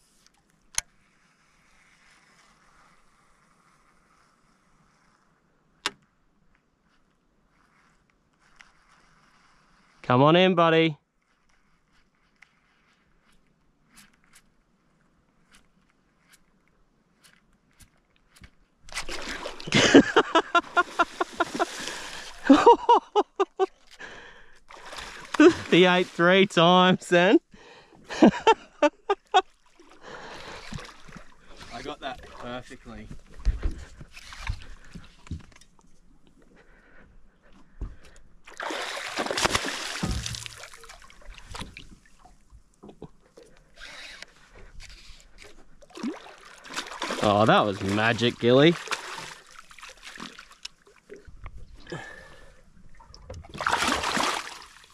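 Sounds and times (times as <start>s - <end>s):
fish splashing at water surface: 38.5s - 42.3s, 53.4s - 54.9s
fish splashing in water: 38.5s - 42.4s, 45.8s - 51.2s, 53.1s - 54.9s.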